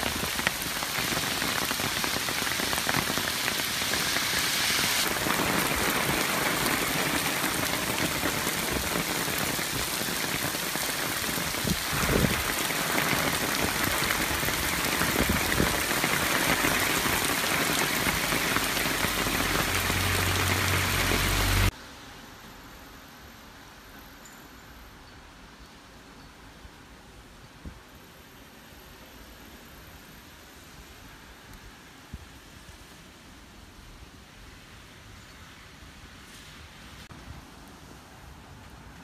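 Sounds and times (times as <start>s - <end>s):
heavy rain pouring: 0.0s - 21.8s.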